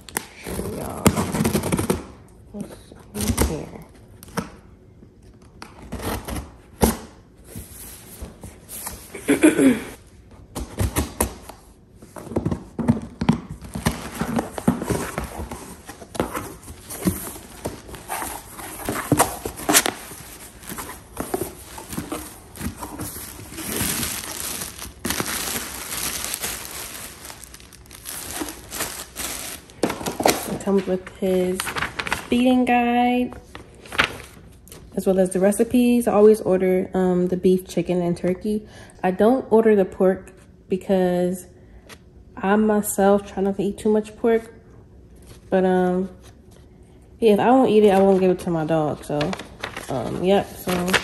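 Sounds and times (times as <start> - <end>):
paper rustling and crinkling: 13.6 - 32.5, 33.4 - 34.6, 49.2 - 51.0
packing tape cut and torn: 16.1 - 30.6.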